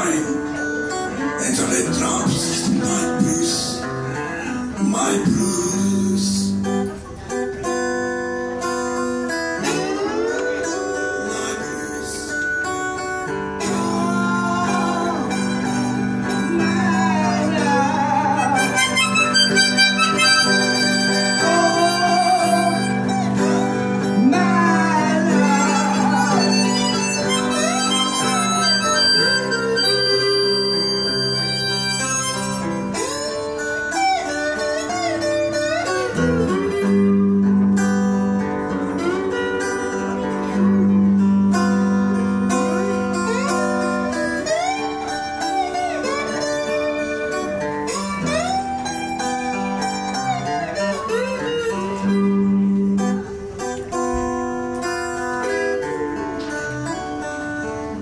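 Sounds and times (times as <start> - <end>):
acoustic guitars playing chords: 0.0 - 58.0
harmonica solo: 13.6 - 40.7, 42.5 - 53.6.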